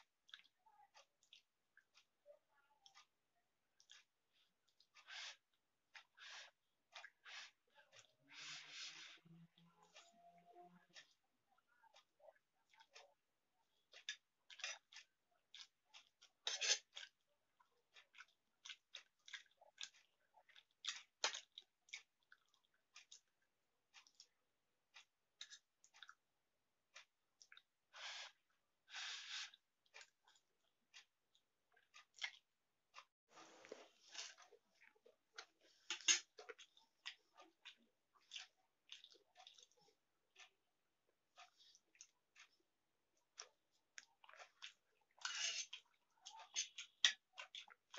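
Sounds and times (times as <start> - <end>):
wet chewing smacks: 18.0 - 23.3, 29.5 - 33.1, 33.7 - 40.5, 43.4 - 47.9.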